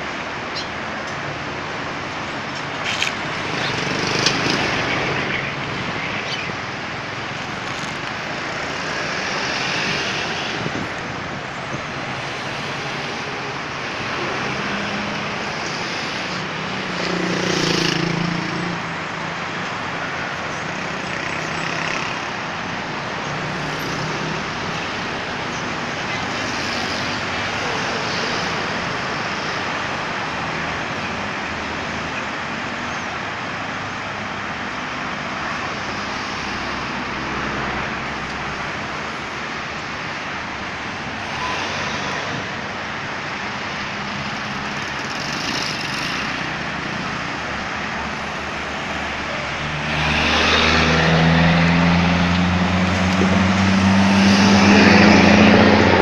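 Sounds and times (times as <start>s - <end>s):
road traffic passing: 0.0s - 56.0s.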